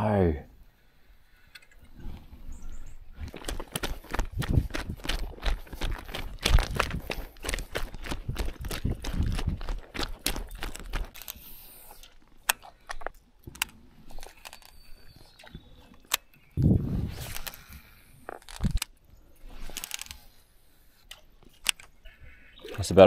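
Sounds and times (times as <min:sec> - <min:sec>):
sharp clicks and knocks: 0:03.2 - 0:11.4, 0:12.0 - 0:14.8
footsteps crunching on gravel: 0:03.2 - 0:12.0.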